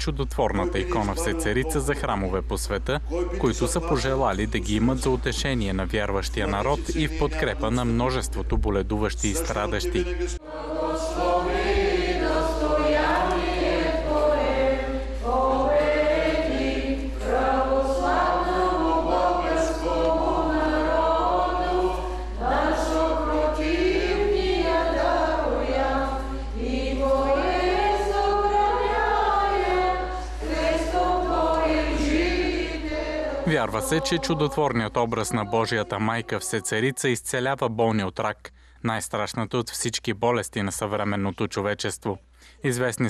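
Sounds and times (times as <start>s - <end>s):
choir chanting hymns: 0.4s - 2.4s, 9.3s - 37.1s.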